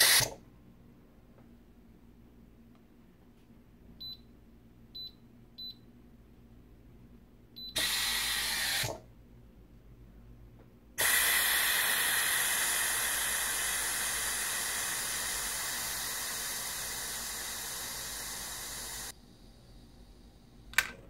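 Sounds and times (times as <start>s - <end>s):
steam hissing from valve: 0.0s - 0.4s, 7.8s - 9.0s, 11.0s - 20.5s.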